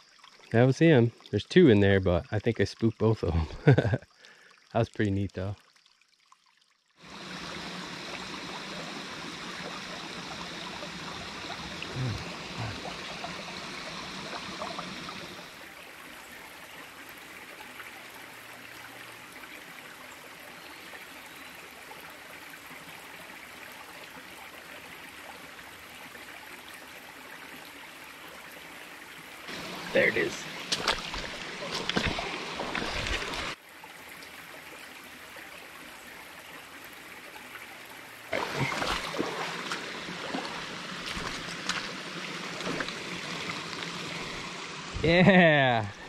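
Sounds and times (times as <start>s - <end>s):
water splashing over dam: 29.5s - 33.6s, 38.3s - 44.0s.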